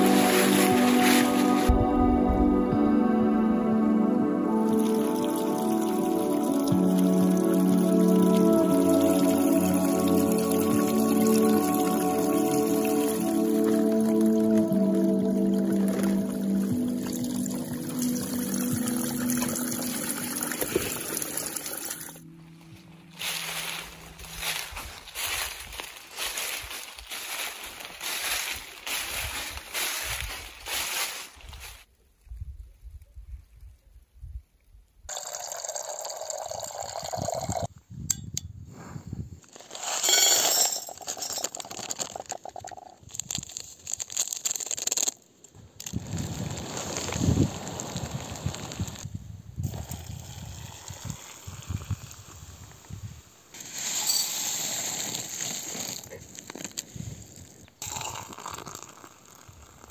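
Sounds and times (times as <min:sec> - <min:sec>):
spring water trickling: 0:04.7 - 0:22.2, 0:35.1 - 0:37.7, 0:57.8 - 0:59.9
plastic packets crinkling: 0:39.5 - 0:45.2
dry food pouring into pot: 0:39.6 - 0:45.1, 0:53.6 - 0:56.8, 0:57.8 - 0:59.9.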